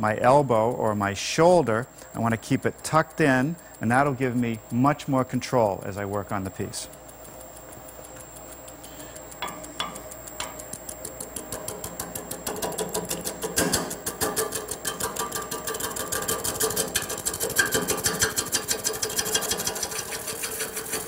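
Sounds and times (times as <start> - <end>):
gouge clattering on lathe wood: 13.5 - 21.0.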